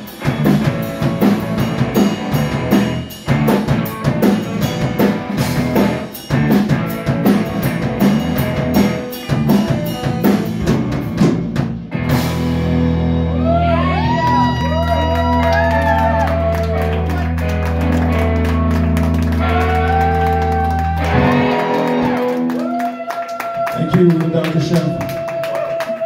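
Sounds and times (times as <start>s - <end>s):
drum kit pounding: 0.0s - 14.8s
bass guitar: 0.0s - 25.4s
electric guitar: 0.0s - 26.0s.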